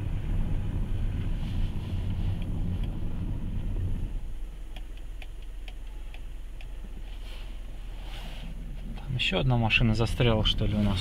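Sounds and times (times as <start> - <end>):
tractor engine rumbling: 0.0 - 11.0
light rapid ticking: 4.4 - 6.8.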